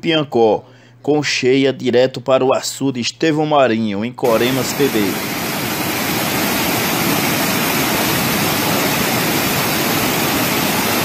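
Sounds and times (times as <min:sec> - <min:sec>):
water rushing down rocky channel: 0:04.3 - 0:11.0.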